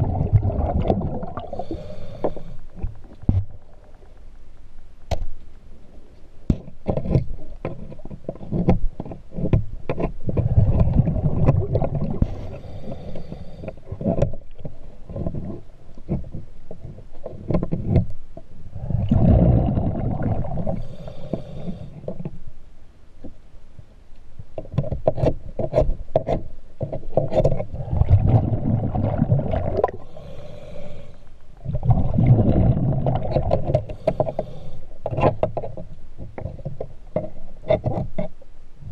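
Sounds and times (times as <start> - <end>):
underwater exhaled bubbles: 0.0 - 3.0, 10.4 - 13.1, 18.7 - 21.8, 27.7 - 30.4, 31.6 - 34.6.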